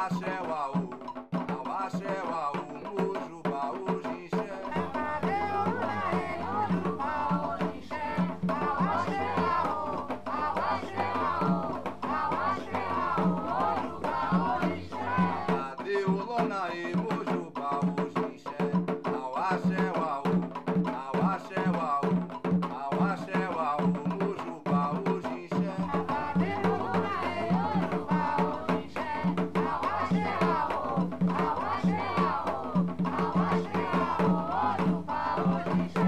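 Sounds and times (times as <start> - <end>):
person singing: 0.0 - 20.2
hand drums beating: 0.0 - 36.0.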